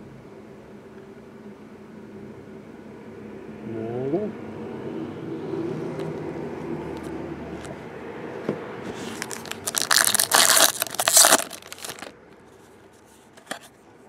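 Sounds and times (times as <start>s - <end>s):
foil wrapper crinkling and tearing: 9.0s - 12.1s.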